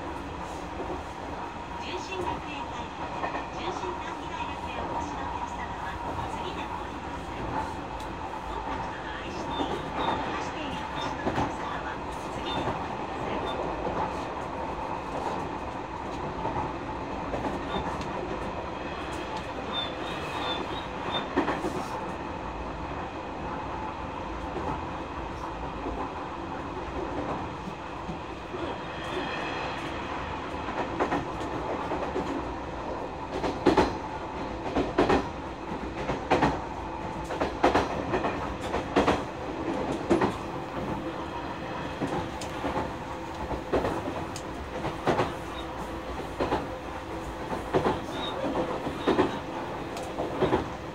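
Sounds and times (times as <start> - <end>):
train rolling noise: 0.0 - 50.9.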